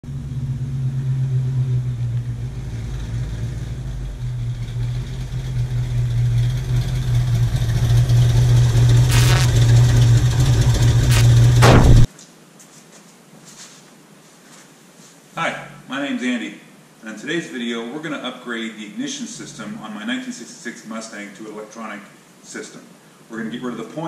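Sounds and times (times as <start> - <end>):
car engine driving up: 0.0 - 12.1
engine crackles: 0.1 - 12.1.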